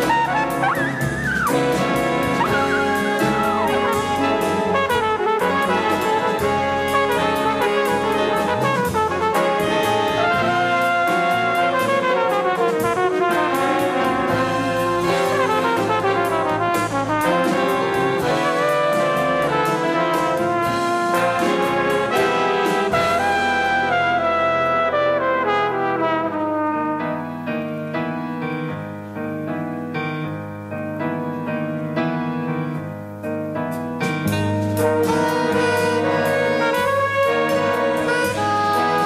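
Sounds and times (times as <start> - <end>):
saxophones: 0.0 - 26.5, 34.8 - 39.0
brass chords: 0.0 - 39.0
drums: 0.0 - 39.0.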